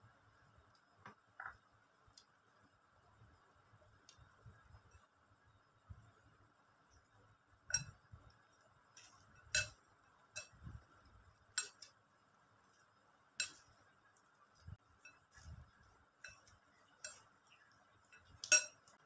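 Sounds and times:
metal spoon clinking against glass bowl: 0:07.7 - 0:08.0, 0:09.0 - 0:10.8, 0:11.5 - 0:11.9, 0:13.4 - 0:13.8, 0:16.2 - 0:19.0.

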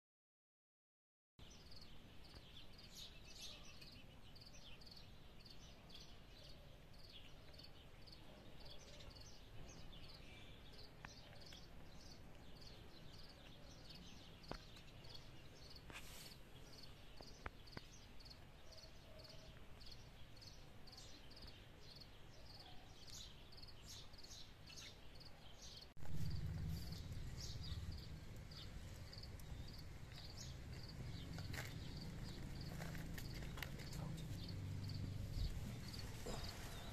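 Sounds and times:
loud low rumble: 0:26.0 - 0:32.3.

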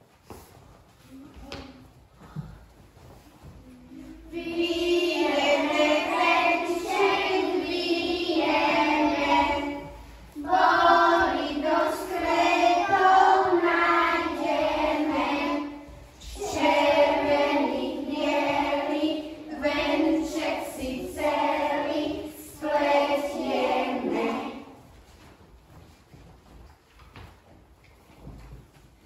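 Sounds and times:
children singing: 0:03.9 - 0:24.9.

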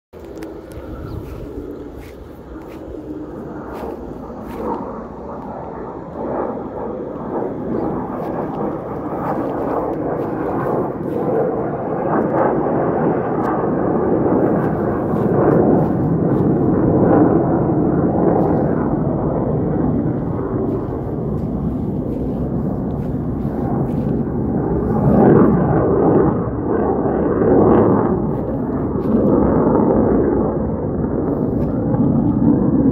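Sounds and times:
fighter jets flying overhead: 0:00.2 - 0:32.9.

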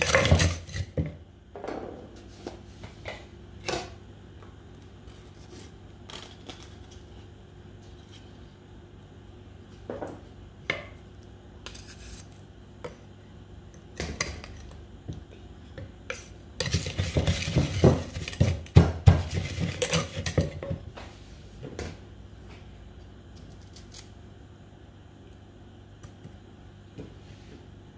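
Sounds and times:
pestle pounding in wooden mortar: 0:16.6 - 0:20.6.

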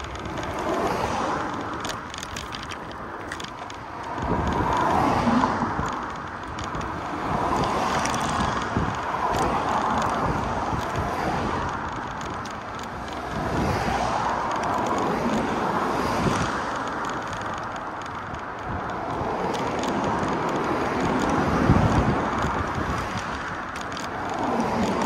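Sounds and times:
traffic passing: 0:00.0 - 0:25.0
wind buffeting microphone: 0:00.0 - 0:25.0.

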